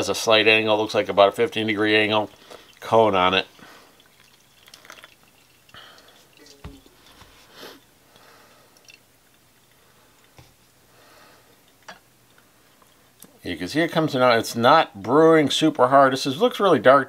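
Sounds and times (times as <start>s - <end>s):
coffee dripping into mugs: 1.5s - 7.3s, 8.1s - 10.4s.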